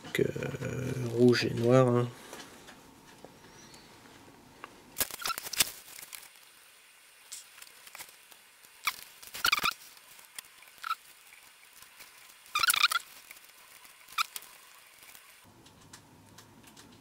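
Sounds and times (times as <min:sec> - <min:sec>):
soldering crackles and clicks: 0:04.6 - 0:17.0.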